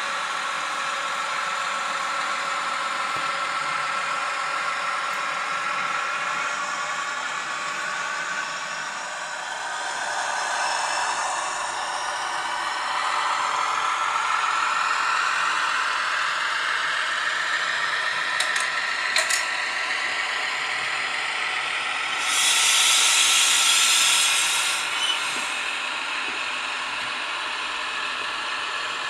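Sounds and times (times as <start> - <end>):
locomotive running: 0.0 - 29.0
burst of hiss: 22.2 - 25.7.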